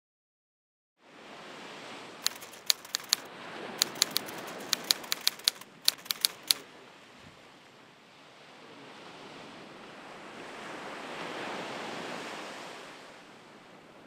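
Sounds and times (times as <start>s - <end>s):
typewriter key strikes: 2.2s - 6.6s.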